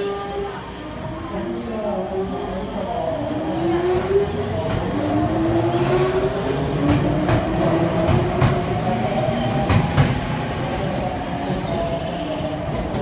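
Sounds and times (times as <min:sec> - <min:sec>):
train rumble: 0:00.0 - 0:13.0.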